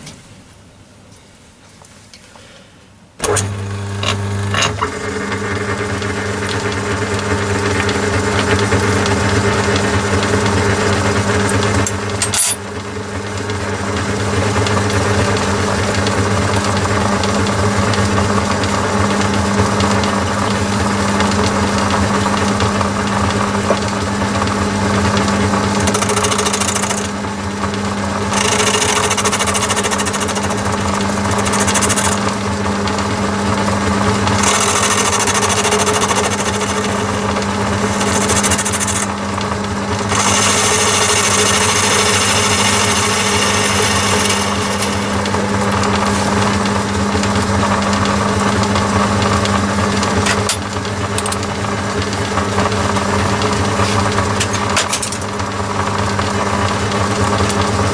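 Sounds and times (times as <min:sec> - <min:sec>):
lathe motor humming: 0:03.2 - 0:57.9
lathe tool cutting metal hiss: 0:34.3 - 0:37.2, 0:37.8 - 0:39.1, 0:40.1 - 0:46.5.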